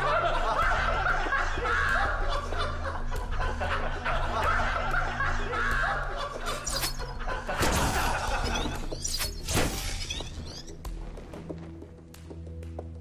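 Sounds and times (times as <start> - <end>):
men snickering and laughing: 0.0 - 9.0
low droning background music: 0.0 - 13.0.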